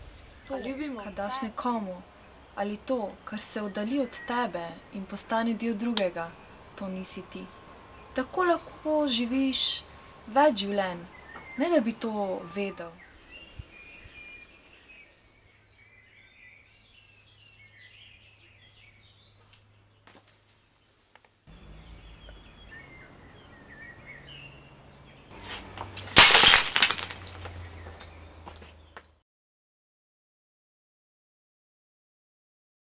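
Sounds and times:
bird chirping: 0.1 - 20.2, 21.5 - 25.4, 27.2 - 29.0
loud crash with shatter: 26.1 - 27.7.

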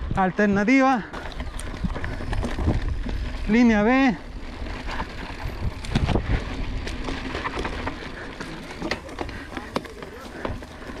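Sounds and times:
bike rattling and knocking: 0.0 - 11.0
bike tyres on loose dirt: 0.0 - 11.0
wind rumble on microphone: 1.3 - 7.8.

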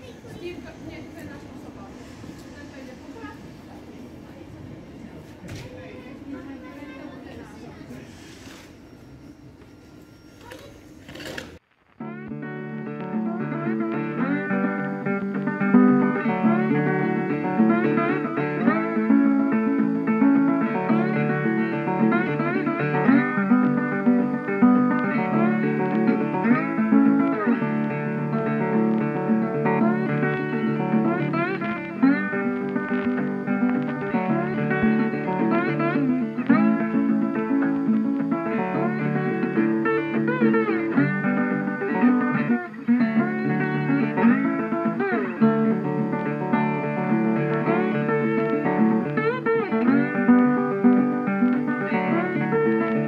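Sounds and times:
plucked acoustic guitar music: 12.0 - 53.0.

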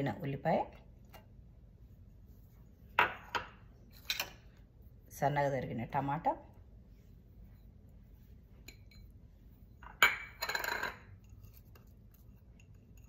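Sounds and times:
bowls knocking and scraping: 2.9 - 4.5, 8.6 - 13.0
bowl clinking: 8.6 - 9.2, 9.8 - 13.0
bowls clicking on stone countertop: 9.8 - 11.8.

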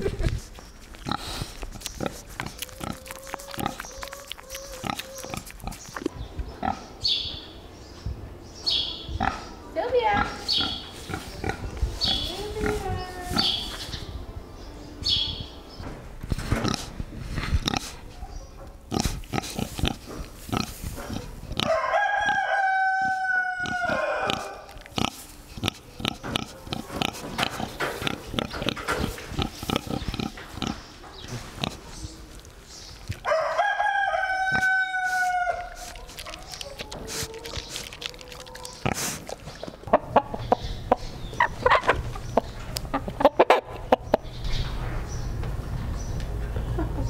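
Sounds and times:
pig snuffling and snorting: 0.0 - 6.9, 16.3 - 18.2, 18.9 - 22.4, 23.0 - 33.7, 34.5 - 40.3
farm animal long call: 2.4 - 5.6, 33.2 - 39.2.

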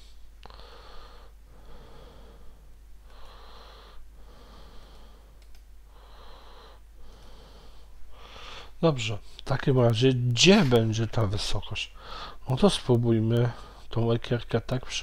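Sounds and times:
person breathing: 0.0 - 9.4, 11.9 - 12.5, 13.4 - 13.9.

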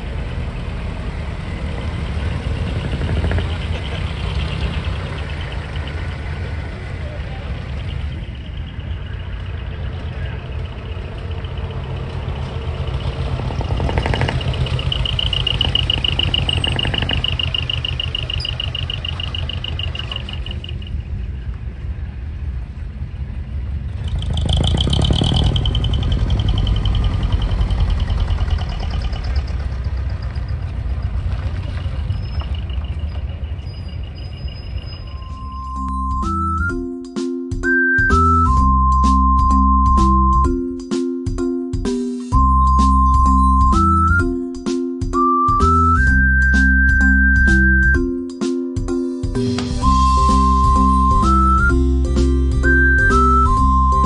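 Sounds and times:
vehicle engines driving past: 0.0 - 36.7.

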